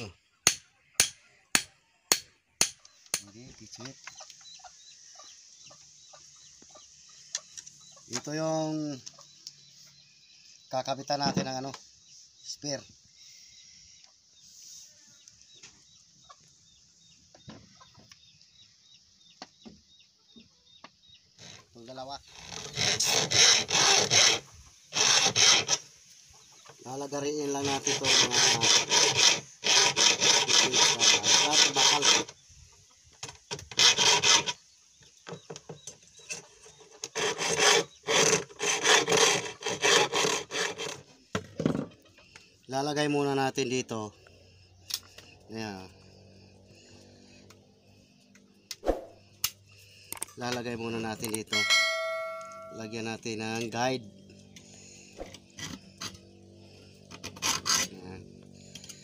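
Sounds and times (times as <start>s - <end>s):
hacksaw scraping strokes on steel: 0.5s - 3.3s, 22.4s - 25.9s, 27.5s - 32.4s, 33.6s - 34.6s, 36.2s - 41.1s, 51.6s - 53.1s, 57.0s - 59.0s
chickens clucking: 2.8s - 10.0s, 15.0s - 18.4s, 26.1s - 27.2s, 41.1s - 42.7s.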